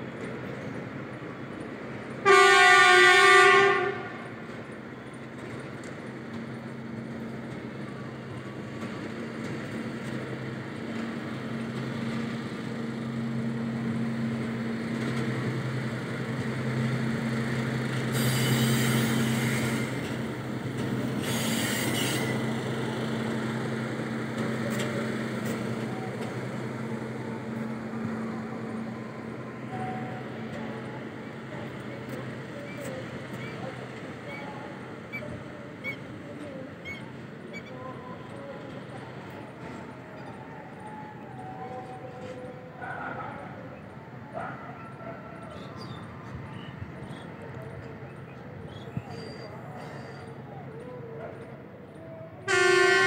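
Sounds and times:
horn blast: 52.5s - 53.0s.

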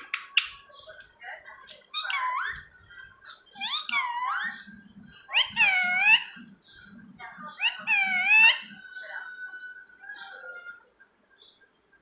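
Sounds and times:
parrot squeaky calls: 1.8s - 2.8s, 3.5s - 6.5s, 7.4s - 10.9s.

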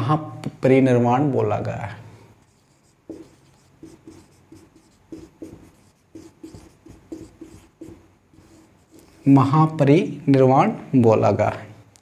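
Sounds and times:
marker writing on a whiteboard: 2.4s - 9.8s.

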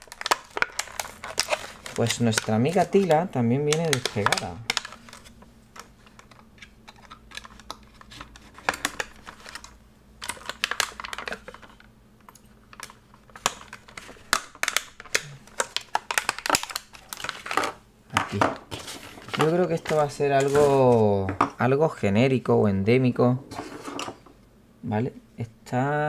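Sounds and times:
plastic packaging being cut open: 0.0s - 5.3s.

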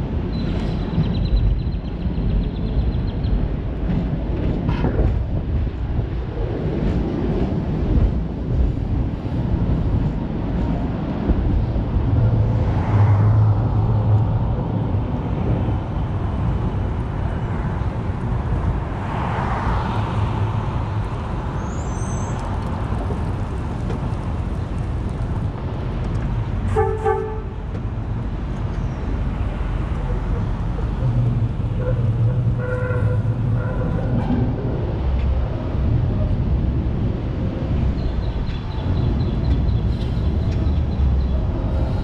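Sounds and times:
streetcar rumbling: 0.0s - 42.0s
short horn toot: 26.7s - 27.5s.

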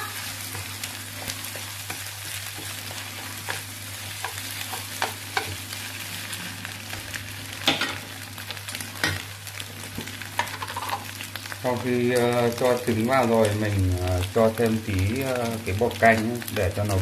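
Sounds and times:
rice sizzling in frying pan: 0.0s - 17.0s
chopsticks scraping and tapping pan: 3.4s - 5.6s.

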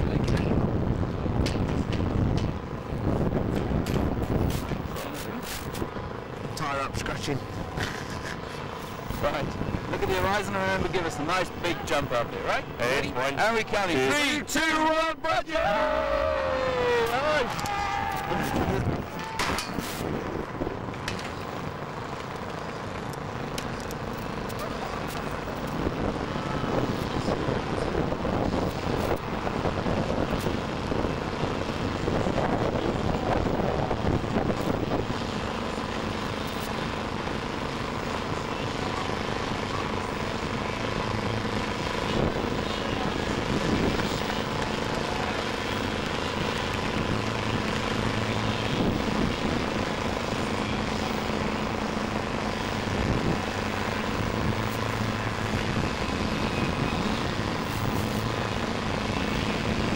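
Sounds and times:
rushing noise: 0.0s - 59.9s
motor droning: 15.8s - 59.9s.

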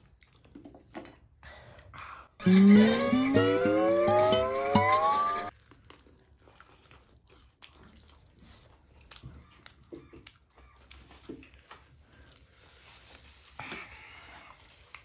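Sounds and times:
person chewing food: 5.5s - 12.7s.

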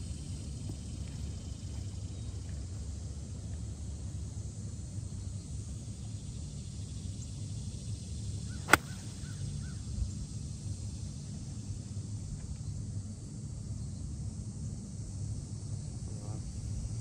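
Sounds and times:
low outdoor background noise: 0.0s - 17.0s
golf club striking ball: 8.6s - 9.2s.

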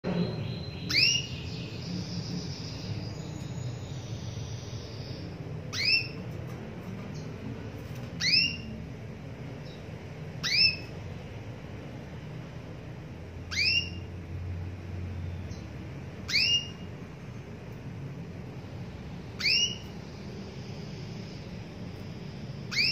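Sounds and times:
canary calling: 0.1s - 6.4s, 7.9s - 8.9s, 9.6s - 11.1s, 13.4s - 14.6s, 15.3s - 17.5s, 18.5s - 22.9s.

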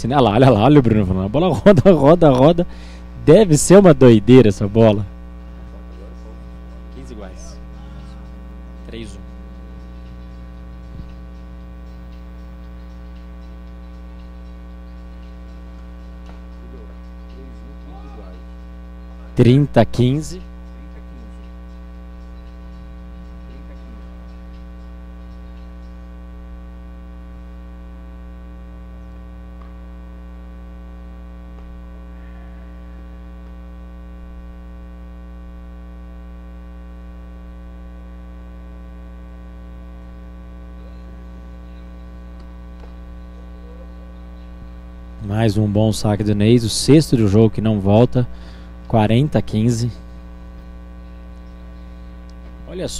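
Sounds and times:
electrical mains hum: 0.0s - 52.9s.

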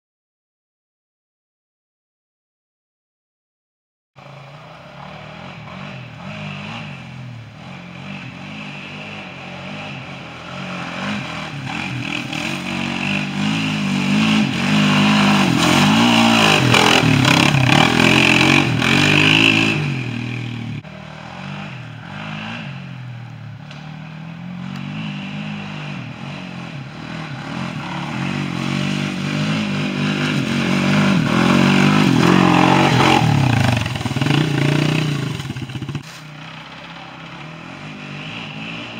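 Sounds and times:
quad engine revving: 4.2s - 38.9s.

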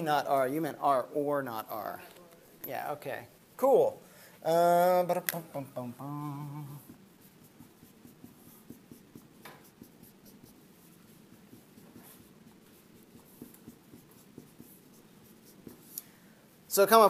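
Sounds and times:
man humming: 4.5s - 7.0s
marker writing on whiteboard: 5.2s - 16.0s.

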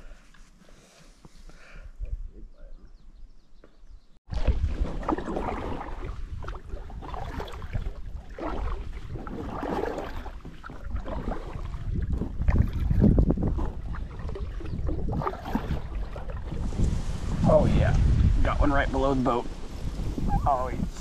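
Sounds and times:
wind buffeting the microphone: 3.9s - 21.0s
water noise: 4.3s - 21.0s.

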